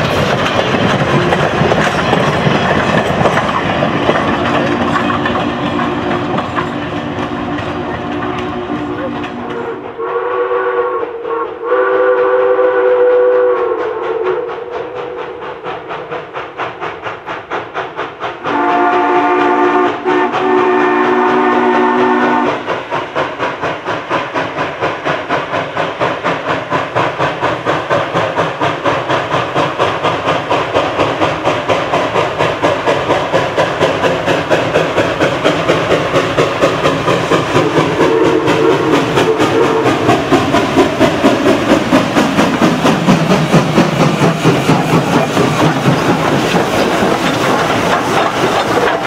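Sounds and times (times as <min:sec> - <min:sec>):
steam locomotive exhaust chuffing: 0:00.0 - 0:49.0
lower-pitched steam whistle: 0:07.3 - 0:15.7, 0:18.4 - 0:22.7, 0:37.6 - 0:40.3
chime steam whistle: 0:07.8 - 0:15.5, 0:37.8 - 0:40.1.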